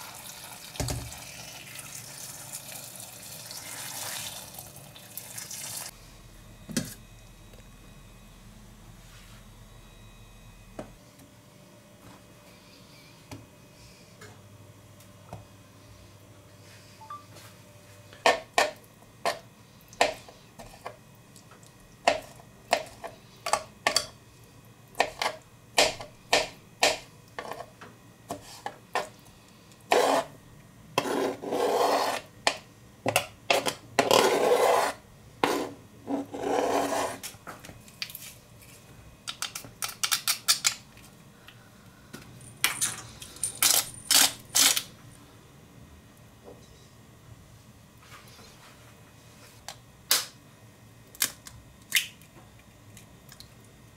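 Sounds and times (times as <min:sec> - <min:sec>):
knife scraping cutting board: 0:29.9 - 0:30.3, 0:31.0 - 0:32.3, 0:33.5 - 0:37.3.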